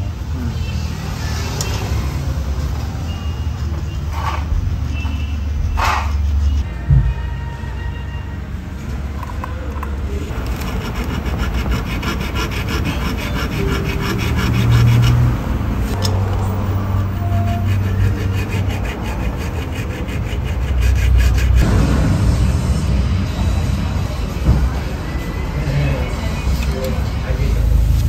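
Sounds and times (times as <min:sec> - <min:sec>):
hand tool scraping: 0:10.3 - 0:21.7.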